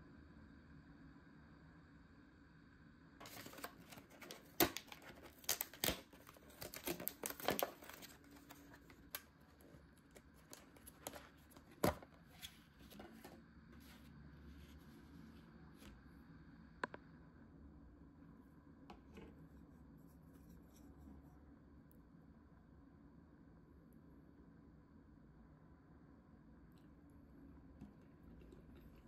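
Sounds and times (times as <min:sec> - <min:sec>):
plastic packaging crinkling: 0:03.2 - 0:13.4.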